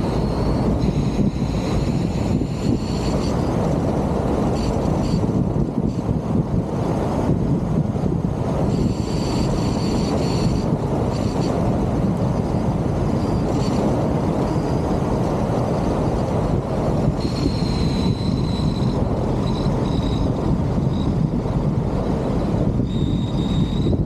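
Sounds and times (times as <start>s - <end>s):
wind rushing over microphone: 0.0s - 24.0s
thin high whining tones: 8.7s - 11.6s, 17.2s - 21.3s, 22.8s - 24.0s.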